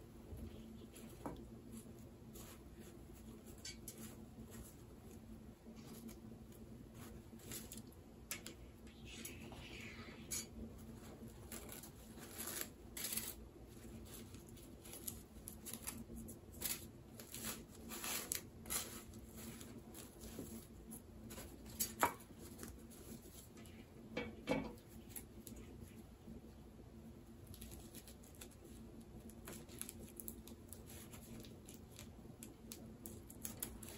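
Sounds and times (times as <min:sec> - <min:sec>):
faint steady hum: 0:00.0 - 0:33.9
packing material rustling: 0:11.0 - 0:23.5.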